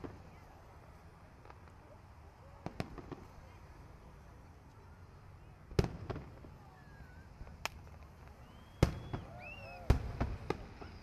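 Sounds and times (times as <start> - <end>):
fireworks booming: 0.0 - 0.5, 2.5 - 3.6, 5.6 - 11.0.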